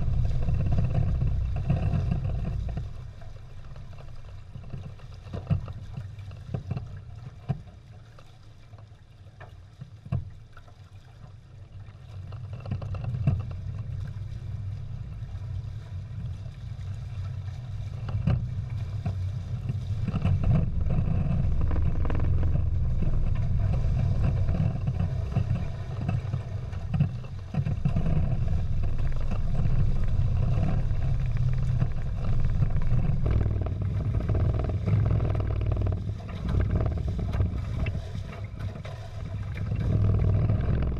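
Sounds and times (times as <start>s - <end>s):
wind buffeting microphone: 0.0s - 3.9s, 13.5s - 40.9s
water rushing along hulls: 0.0s - 40.9s.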